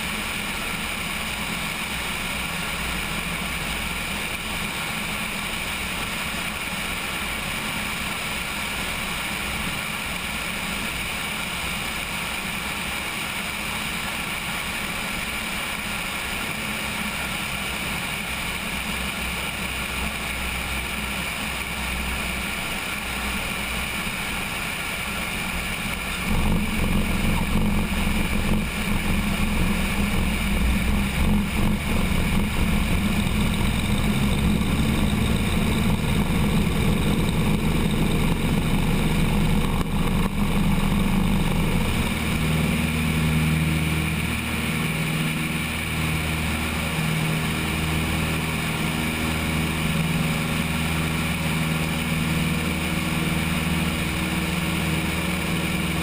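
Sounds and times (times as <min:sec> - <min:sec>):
propeller plane engine: 0:00.0 - 0:56.0
wind: 0:00.0 - 0:56.0.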